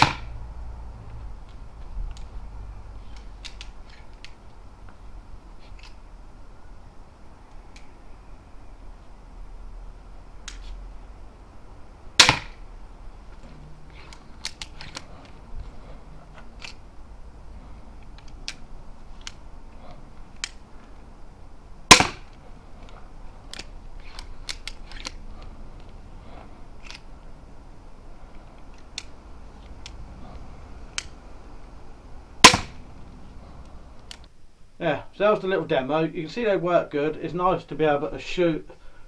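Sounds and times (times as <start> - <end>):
crossbow shot snap: 0.0 - 0.3, 12.2 - 12.6, 21.9 - 22.3, 32.4 - 32.8
crossbow cocking clicks and knocks: 3.1 - 4.4, 14.0 - 15.4, 23.5 - 25.2.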